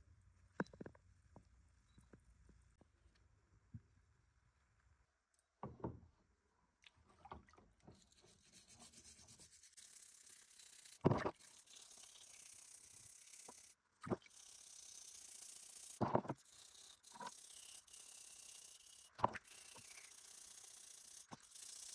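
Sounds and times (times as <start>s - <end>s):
wire brush scrubbing metal: 8.0s - 13.8s.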